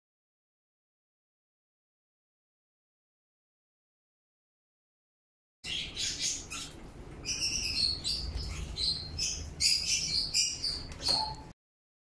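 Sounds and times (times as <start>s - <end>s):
chicks cheeping: 5.6s - 11.5s.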